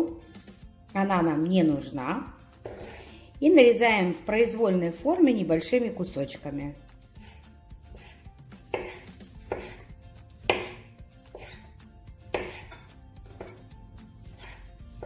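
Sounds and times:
knife chopping on wooden board: 2.6 - 3.0, 7.2 - 15.0.

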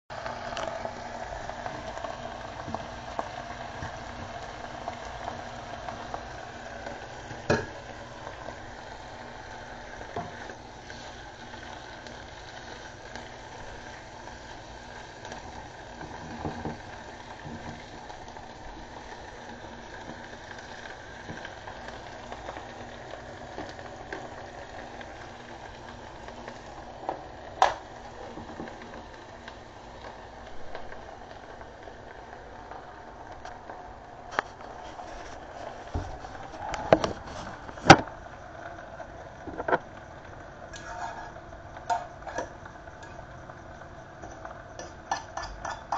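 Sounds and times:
onions sizzling in frying pan: 0.1 - 45.9.

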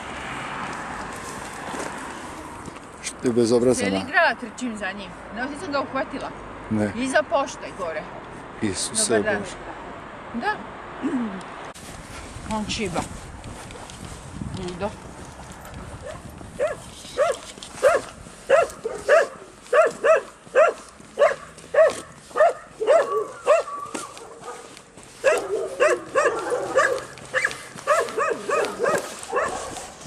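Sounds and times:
dog whining yips: 16.1 - 24.6, 25.2 - 29.8.

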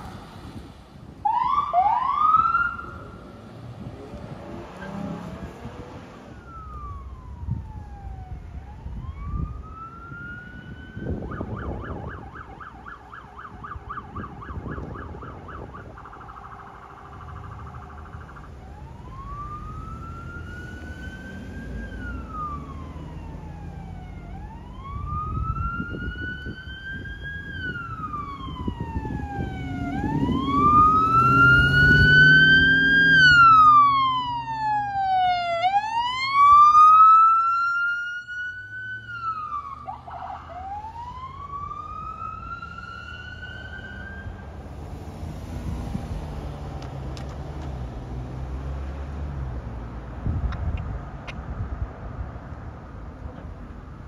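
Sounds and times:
siren wailing: 1.2 - 3.4, 4.0 - 44.6
siren yelp: 1.2 - 3.4, 4.6 - 44.6
vehicle engine: 2.5 - 8.4, 14.6 - 54.0.

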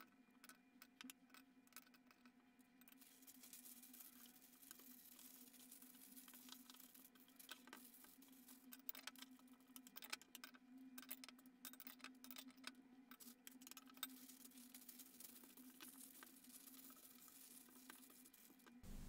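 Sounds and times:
baking paper crackling: 14.1 - 19.0.

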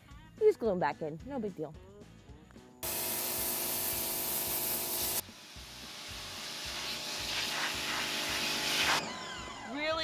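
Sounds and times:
machine humming: 2.8 - 7.2
pressure washer spraying water: 2.8 - 9.0.

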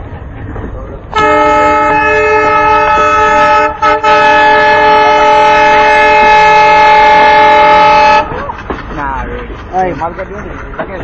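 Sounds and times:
locomotive horn blast: 1.1 - 8.4.

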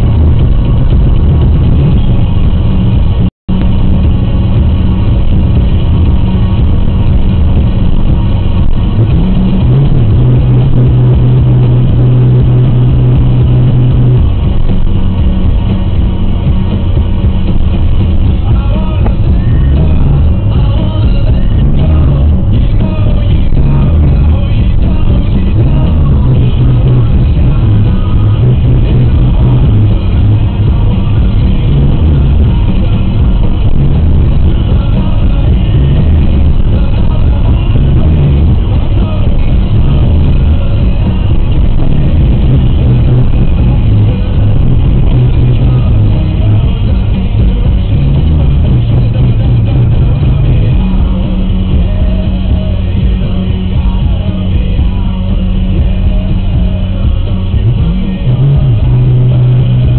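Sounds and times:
music with heavy bass line: 0.0 - 59.9.

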